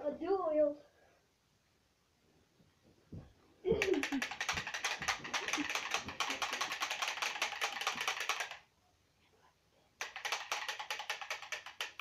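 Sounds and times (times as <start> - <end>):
rapid rattle of sharp clicks: 3.8 - 8.7, 10.0 - 12.0.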